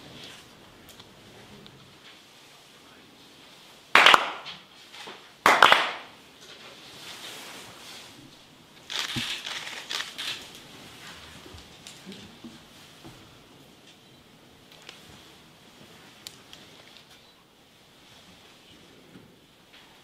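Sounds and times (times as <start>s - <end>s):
sharp hand claps: 4.0s - 4.6s, 5.4s - 6.1s.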